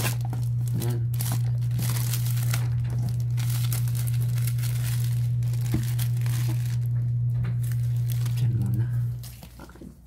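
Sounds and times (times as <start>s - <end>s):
shrink wrap crinkling and tearing: 0.0s - 9.7s
steady low hum: 0.0s - 10.0s.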